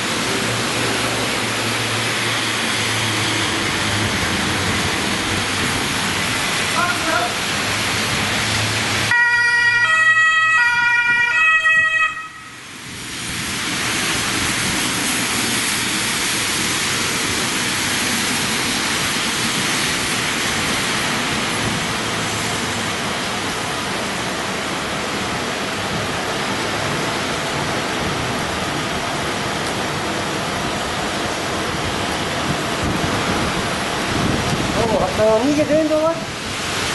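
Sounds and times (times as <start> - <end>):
rain hissing: 0.0 - 9.1, 12.2 - 36.9
tyres on wet road: 0.0 - 36.9
two-tone emergency siren: 9.1 - 12.7.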